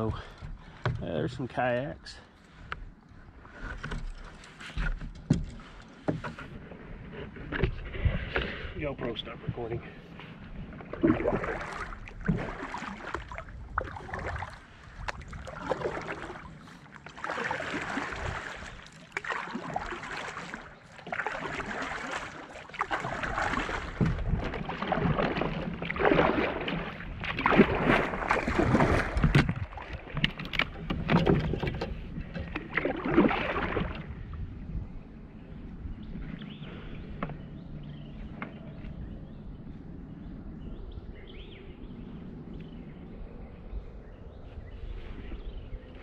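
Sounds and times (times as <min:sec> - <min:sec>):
paddle splashing through water: 0:03.4 - 0:34.2.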